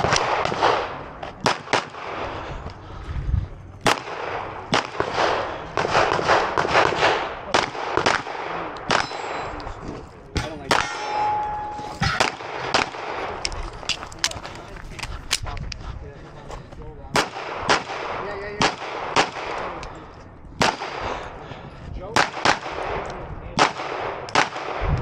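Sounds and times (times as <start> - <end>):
pistol shots: 0.0 - 2.3, 3.8 - 9.6, 10.4 - 14.4, 17.1 - 19.9, 20.6 - 21.2, 22.2 - 24.9
ringing tone: 10.9 - 12.2.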